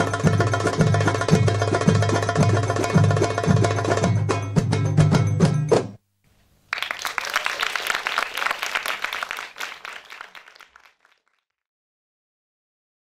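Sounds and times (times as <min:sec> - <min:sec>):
drum-led belly dance music: 0:00.0 - 0:06.0
audience applauding: 0:06.7 - 0:11.5.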